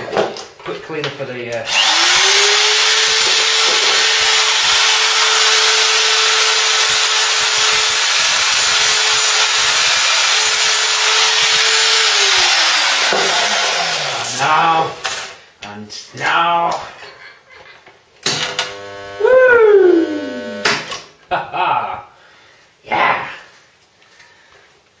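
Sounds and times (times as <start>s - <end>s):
rotary power tool grinding steel: 1.7s - 15.4s, 20.0s - 20.6s.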